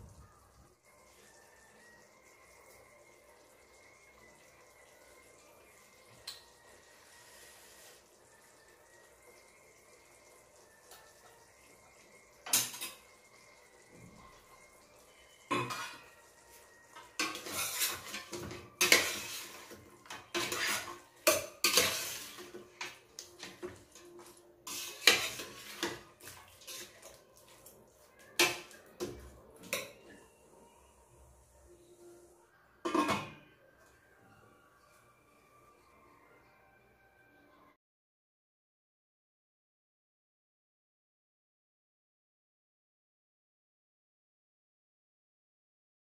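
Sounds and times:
metal spoon scraping a pot: 15.5 - 16.2, 17.0 - 27.6.

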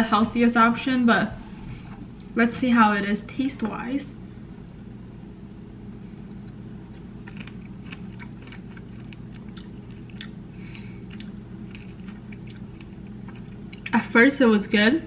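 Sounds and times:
steady low hum: 0.0 - 15.0
person chewing: 6.2 - 13.9.

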